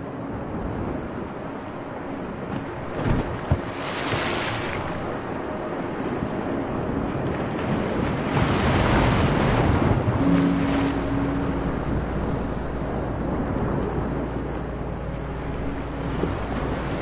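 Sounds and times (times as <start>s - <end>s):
choppy sea waves washing: 0.0s - 17.0s
wind: 0.0s - 17.0s.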